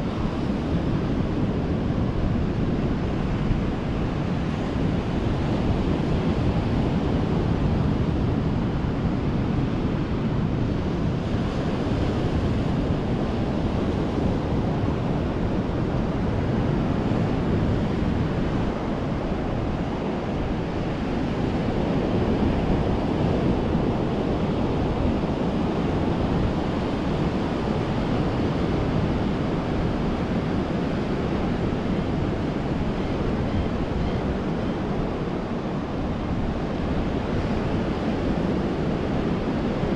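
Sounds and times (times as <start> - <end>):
ocean surf washing ashore: 0.0 - 39.9.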